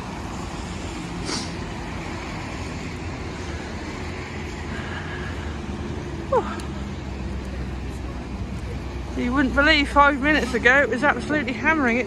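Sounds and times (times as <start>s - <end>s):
road traffic rumbling: 0.0s - 12.0s
short hiss: 1.2s - 1.6s.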